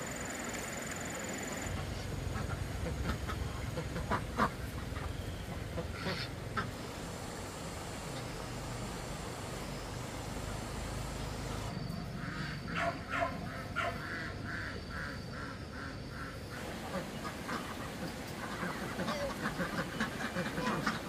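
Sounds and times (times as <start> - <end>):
duck quacking: 1.7 - 6.8, 12.2 - 21.0.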